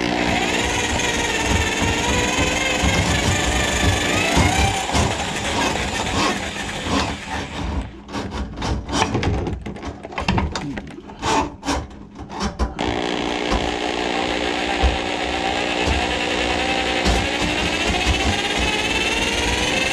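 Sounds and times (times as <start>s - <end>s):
drain auger motor running: 0.0s - 7.9s, 12.8s - 19.9s.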